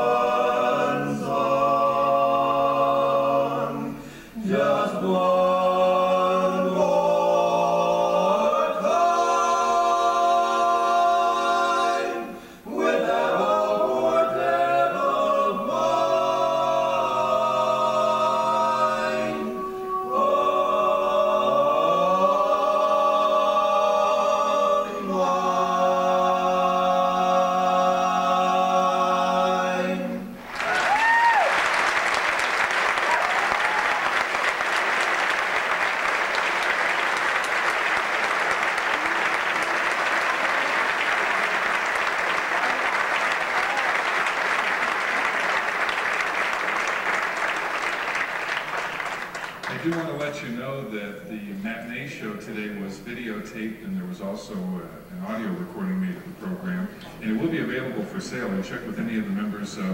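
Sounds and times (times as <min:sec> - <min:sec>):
men singing barbershop harmony: 0:00.0 - 0:30.4
audience applause: 0:30.4 - 0:50.3.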